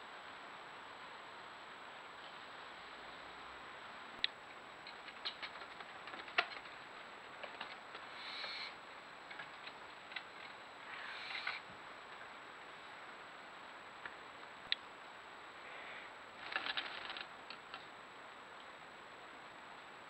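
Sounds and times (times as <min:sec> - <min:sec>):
owl hissing: 0:08.0 - 0:08.8, 0:10.8 - 0:11.7.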